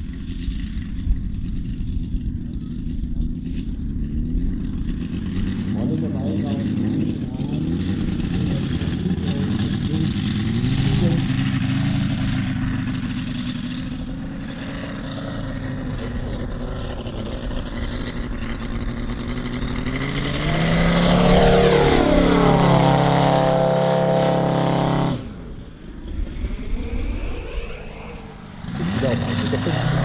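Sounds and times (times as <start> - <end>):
model plane engine flying past: 0.0 - 30.0.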